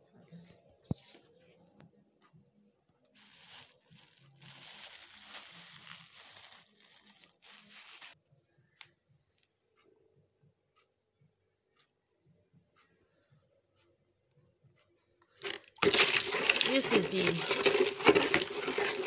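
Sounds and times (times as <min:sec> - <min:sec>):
plastic bags crinkling: 0:03.2 - 0:08.2, 0:15.4 - 0:19.0.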